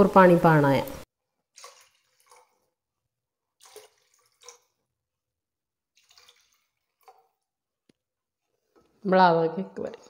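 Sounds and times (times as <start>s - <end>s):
water pouring into pot: 1.3s - 5.2s, 5.8s - 7.7s.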